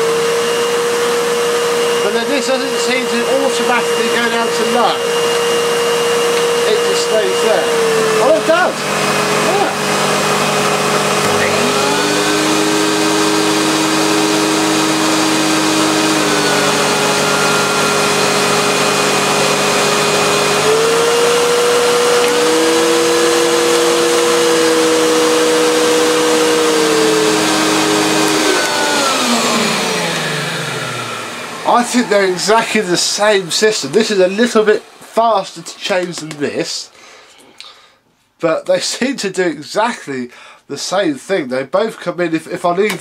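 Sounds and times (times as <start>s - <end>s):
vacuum cleaner motors humming: 0.0s - 36.9s
motors winding down: 7.8s - 33.4s.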